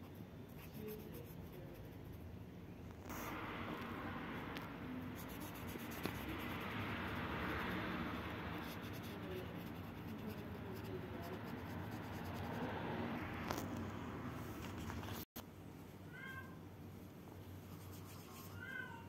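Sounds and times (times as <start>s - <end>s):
marker scratching on paper: 0.0s - 2.2s, 5.0s - 12.7s, 17.6s - 18.6s.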